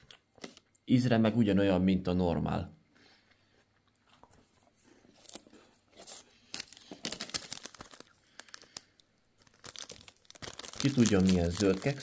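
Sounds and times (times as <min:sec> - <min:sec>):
plastic wrapper crinkling: 0:05.2 - 0:12.0.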